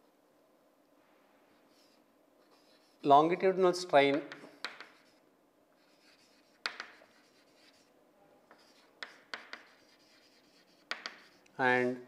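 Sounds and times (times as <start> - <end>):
chalk scratching on chalkboard: 1.6 - 3.1, 4.2 - 5.2, 5.8 - 7.9, 8.5 - 11.5
chalk tapping on board: 4.1 - 5.2, 5.8 - 7.8, 8.5 - 11.4.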